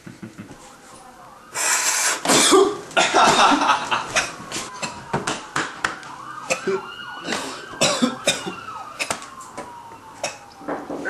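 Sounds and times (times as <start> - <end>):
man sniffing loudly: 1.5 - 2.3
man coughing and sputtering: 2.2 - 5.0, 7.8 - 9.1.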